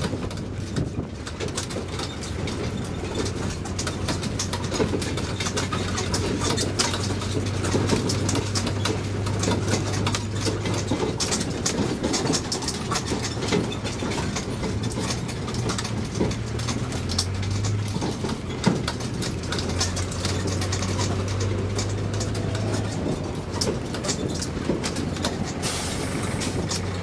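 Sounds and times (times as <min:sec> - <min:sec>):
carriage rattling and clicking: 0:00.0 - 0:27.0
low engine hum: 0:00.0 - 0:27.0.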